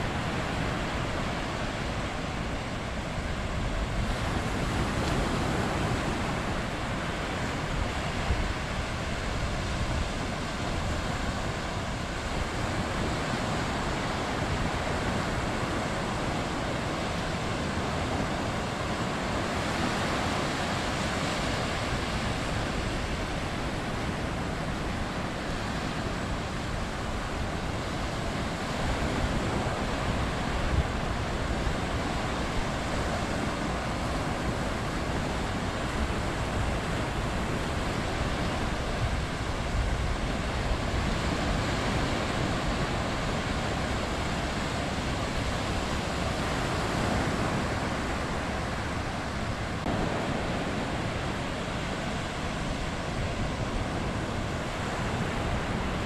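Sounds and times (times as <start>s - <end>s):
small waves breaking on shore: 0.0s - 56.0s.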